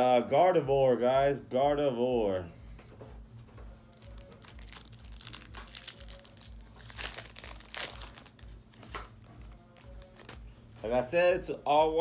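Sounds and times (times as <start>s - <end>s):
foil wrapper crinkling and tearing: 3.9s - 10.4s.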